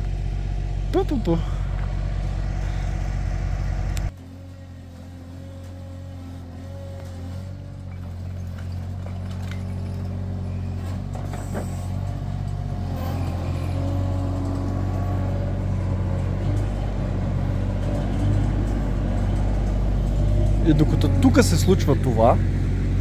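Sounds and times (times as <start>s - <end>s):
loader engine running: 0.0s - 23.0s.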